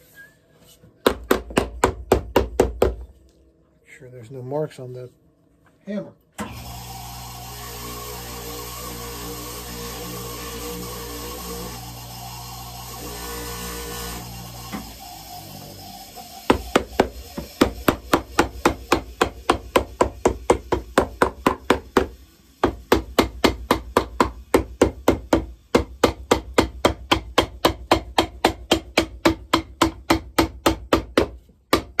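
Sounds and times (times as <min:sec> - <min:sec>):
hammer striking leather sole: 0:16.5 - 0:32.0.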